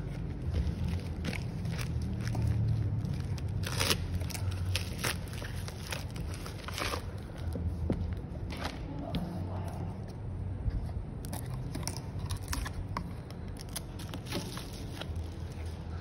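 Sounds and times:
plastic packaging crinkling: 0.0s - 7.5s, 11.3s - 15.9s.

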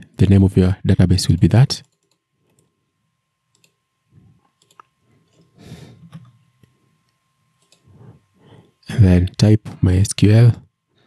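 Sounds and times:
mouse and keyboard clicks: 4.5s - 5.5s, 7.6s - 7.9s.

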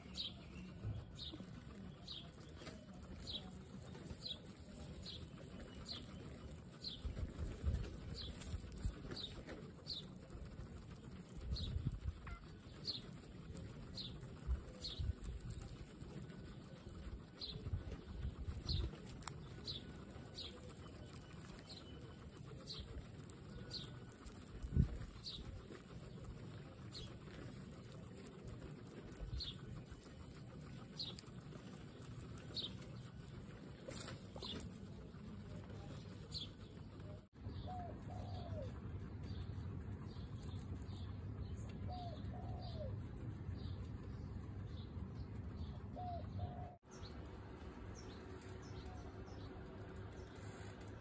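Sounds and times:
guinea pigs munching grass: 0.0s - 51.0s.

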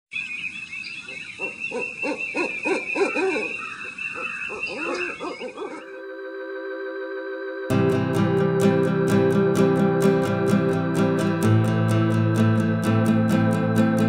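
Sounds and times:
owl hooting: 1.0s - 6.1s
steady high tone: 5.8s - 14.0s
sustained musical chord: 5.8s - 14.0s.

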